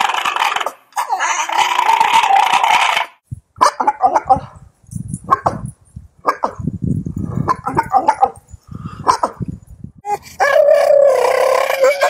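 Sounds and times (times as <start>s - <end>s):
long held dog call: 10.1s - 12.0s
dog yowling: 10.4s - 12.0s.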